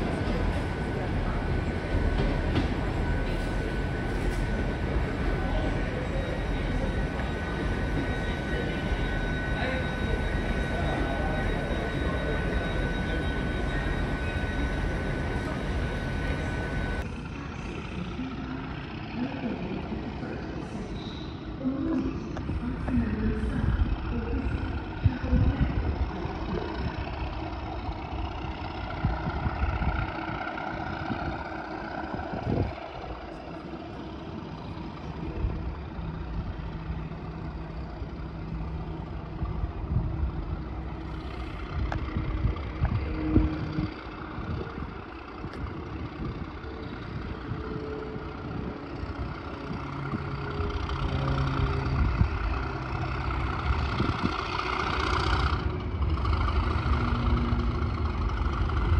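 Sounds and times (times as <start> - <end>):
diesel train engine rumbling: 0.0 - 58.9
locomotive approaching: 0.0 - 58.9
wind buffeting microphone: 22.4 - 34.1, 39.2 - 54.7.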